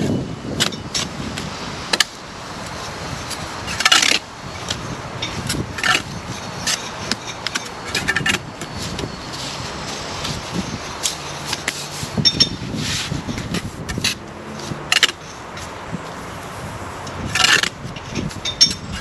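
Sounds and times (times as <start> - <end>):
trowel scraping mortar: 17.2 - 17.8.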